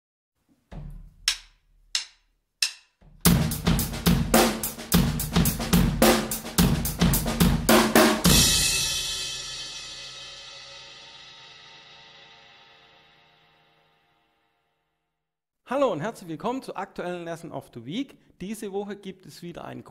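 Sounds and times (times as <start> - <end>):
snare and bass drum strokes: 0.7 - 11.0
cymbal crash: 8.2 - 13.7.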